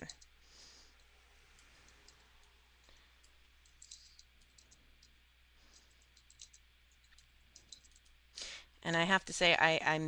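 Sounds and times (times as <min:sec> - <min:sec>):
computer mouse clicks: 0:00.0 - 0:00.3, 0:01.0 - 0:08.2
low steady hum: 0:00.0 - 0:10.0.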